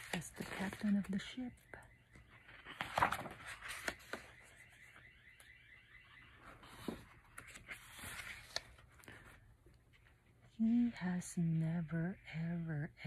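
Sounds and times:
book pages turning: 0.0s - 1.3s, 2.1s - 5.0s, 6.4s - 10.2s.

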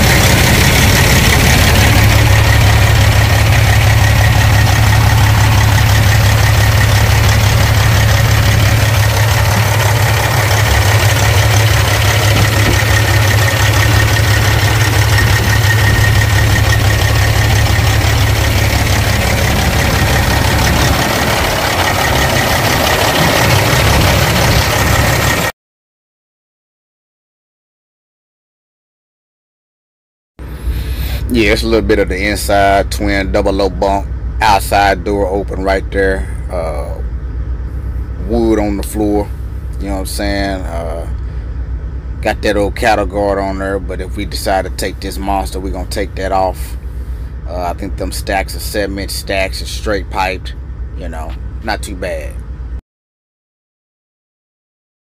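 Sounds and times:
truck diesel engine idling: 0.0s - 25.5s, 30.4s - 52.8s.

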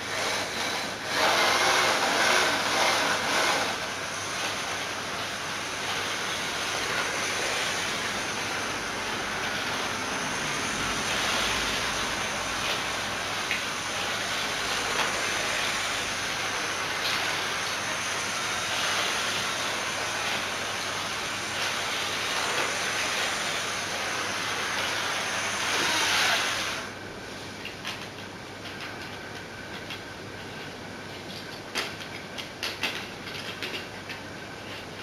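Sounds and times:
model train whirring on track: 0.0s - 27.0s.

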